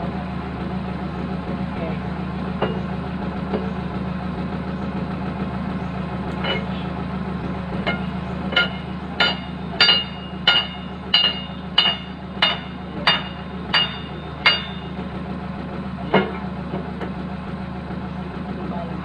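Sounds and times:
diesel engine idling: 0.0 - 19.0
hammer ringing on steel bar: 7.9 - 14.9.

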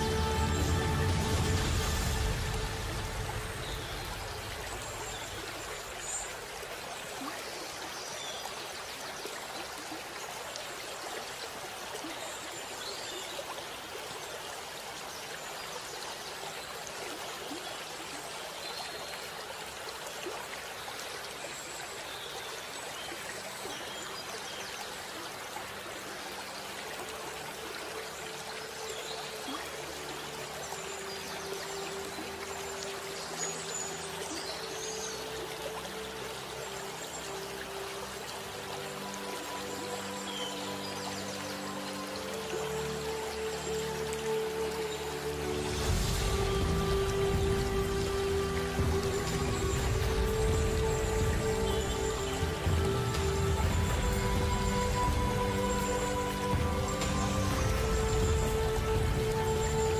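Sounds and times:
music: 0.0 - 6.2, 25.1 - 59.9
running water stream: 0.0 - 59.9.

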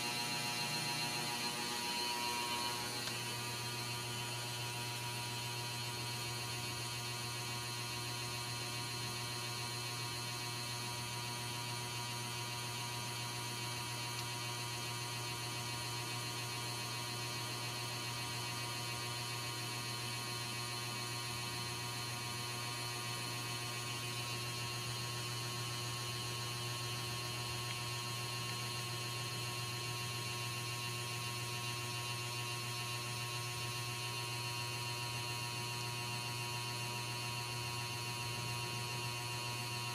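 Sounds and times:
faint high whine: 0.0 - 6.4
low electrical hum: 0.0 - 19.0, 21.1 - 39.9.

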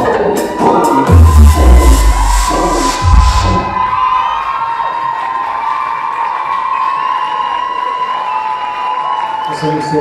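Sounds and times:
loud dance music: 0.0 - 4.7
deep bass note: 1.1 - 4.2.

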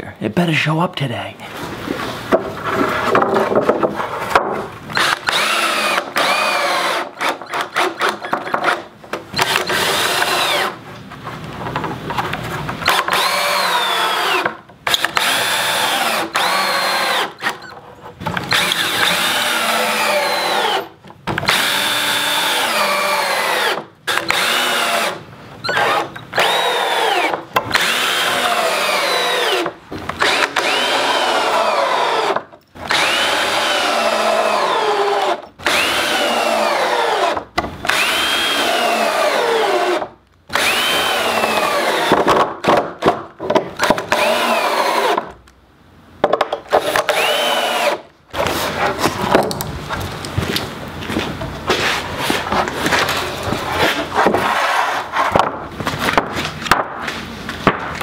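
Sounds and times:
cordless drill driving screws into wood: 4.9 - 10.8, 12.8 - 17.7, 18.4 - 43.2, 43.8 - 45.3, 46.7 - 48.5.

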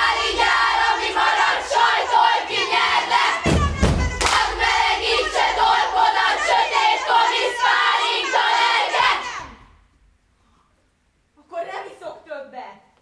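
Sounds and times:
young voices chanting: 0.0 - 9.8.

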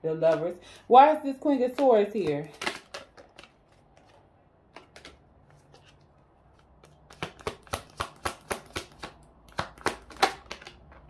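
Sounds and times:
cards clicking: 1.6 - 11.0
card slaps: 1.8 - 3.5, 6.8 - 10.8.

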